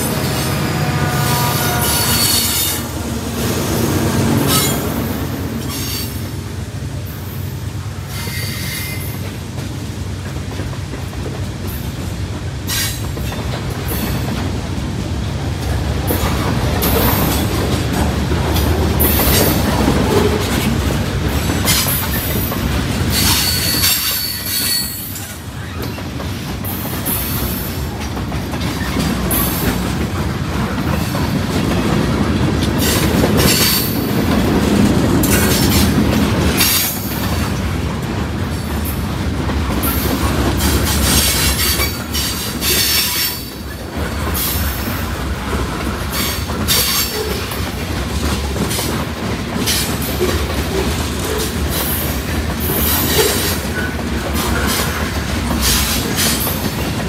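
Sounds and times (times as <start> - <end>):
train wheels rumbling on rails: 0.0 - 57.0
high wheel squeal: 0.2 - 2.9, 4.4 - 4.9, 8.1 - 9.2, 23.1 - 26.0
clicking at rail joints: 8.2 - 57.0.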